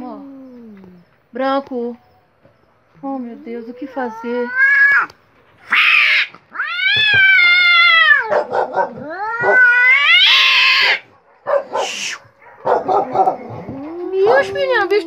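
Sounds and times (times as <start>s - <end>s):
cat yowling: 3.8s - 14.6s
cat hissing: 4.1s - 12.3s.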